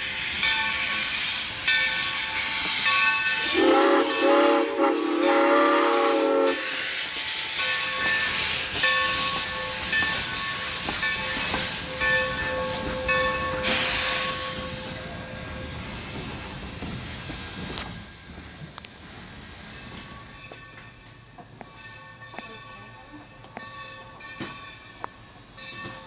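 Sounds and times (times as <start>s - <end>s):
steam hissing: 0.0s - 26.0s
steam locomotive whistle: 2.0s - 18.2s.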